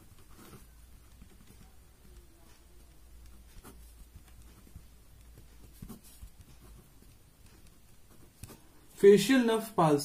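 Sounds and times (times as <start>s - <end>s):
pen scratching on paper: 0.0s - 8.7s.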